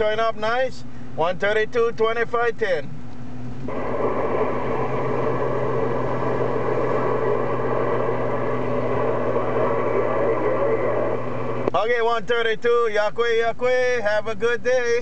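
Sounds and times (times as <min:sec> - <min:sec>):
low steady hum: 0:00.0 - 0:15.0
radio static hiss: 0:03.7 - 0:12.4.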